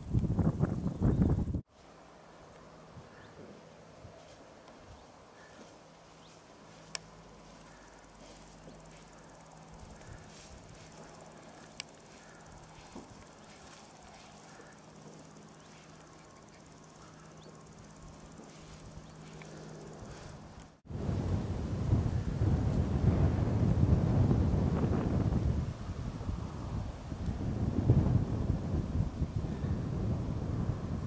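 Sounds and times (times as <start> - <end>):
sharp clicks: 11.1 - 13.3.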